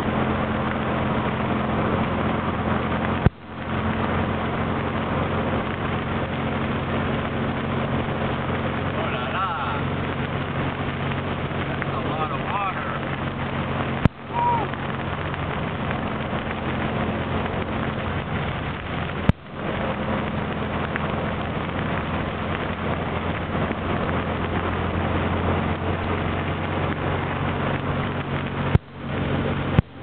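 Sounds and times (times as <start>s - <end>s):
dune buggy engine drone: 0.0s - 30.0s
road wind and rain noise: 0.0s - 30.0s.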